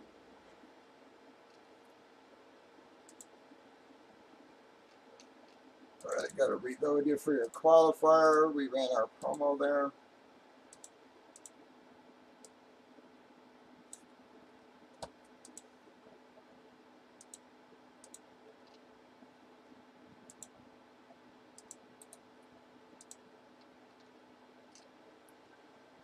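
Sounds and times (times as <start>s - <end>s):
low steady hum: 0.0s - 26.0s
computer mouse clicks: 3.0s - 3.4s, 9.2s - 9.4s, 10.7s - 11.6s, 12.4s - 12.6s, 13.9s - 14.1s, 15.0s - 15.7s, 17.2s - 18.9s, 20.2s - 20.6s, 21.6s - 22.3s, 23.0s - 24.9s.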